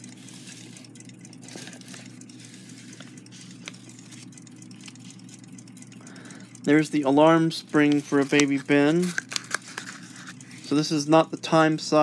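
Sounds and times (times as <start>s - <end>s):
sharp ticks: 0.0s - 11.7s
small clock parts clicking: 0.0s - 12.0s
steady low hum: 0.0s - 12.0s
paper envelope rustling: 1.4s - 4.3s, 7.8s - 10.7s.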